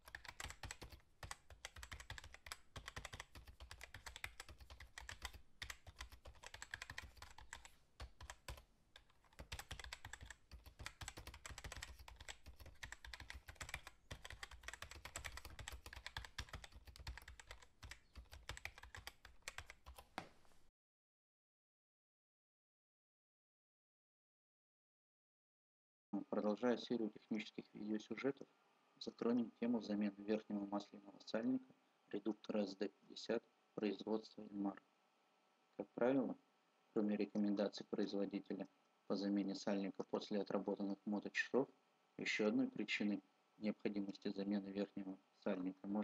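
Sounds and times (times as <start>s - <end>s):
rapid keyboard typing: 0.0s - 20.3s.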